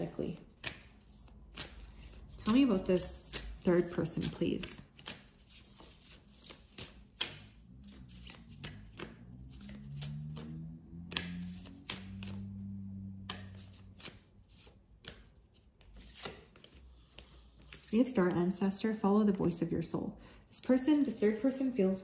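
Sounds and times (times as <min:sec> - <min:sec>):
cards being shuffled: 0:00.2 - 0:18.3.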